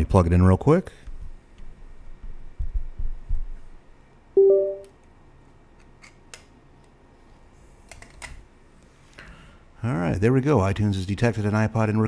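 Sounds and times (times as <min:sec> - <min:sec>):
rising two-note chime: 0:04.4 - 0:04.9.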